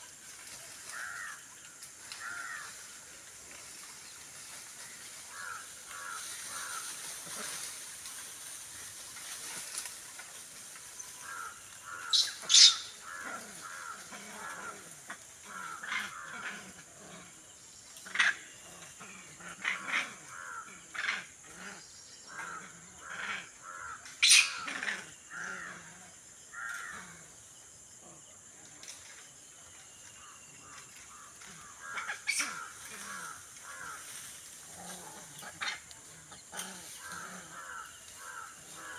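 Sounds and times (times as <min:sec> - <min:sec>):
harsh animal calls: 0:11.2 - 0:17.3, 0:30.6 - 0:38.9.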